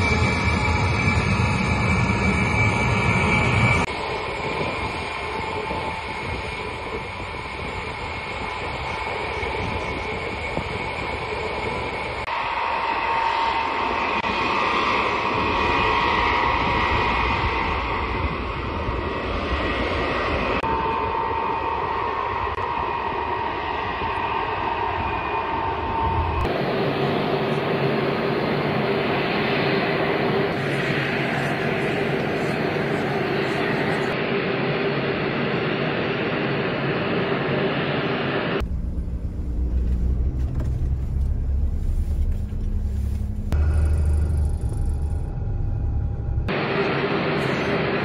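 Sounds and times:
jet engine whine: 0.0s - 48.0s
jet engines rushing: 0.0s - 48.0s
vehicle engine rumble from cab: 38.6s - 46.6s
loud rush of airfield noise: 46.4s - 48.0s.

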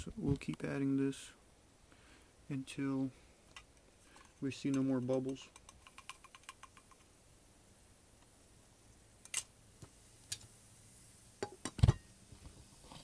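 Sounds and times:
faint ticks and clicks: 3.4s - 7.2s.

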